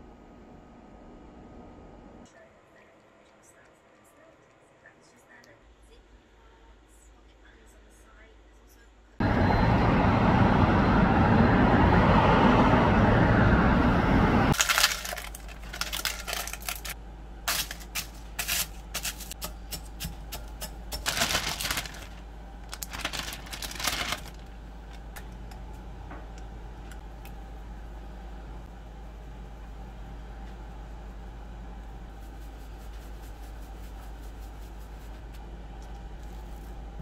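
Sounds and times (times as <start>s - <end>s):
loud outdoor rush: 9.2s - 14.6s
crackers crushed in plastic bowl: 14.6s - 19.3s, 21.0s - 24.5s.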